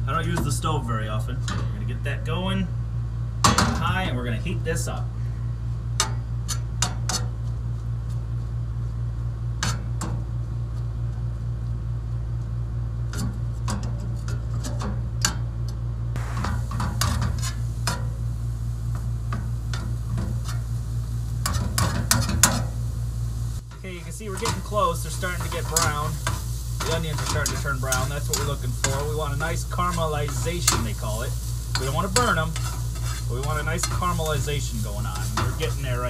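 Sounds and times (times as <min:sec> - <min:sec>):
steady low hum: 0:00.0 - 0:36.0
faint sizzle: 0:16.2 - 0:36.0
spatula scraping a skillet: 0:16.4 - 0:18.1, 0:23.7 - 0:36.0.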